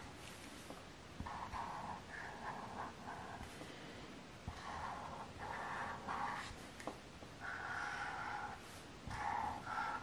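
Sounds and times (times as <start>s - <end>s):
marker scribbling on paper: 1.2s - 3.6s, 4.5s - 10.0s.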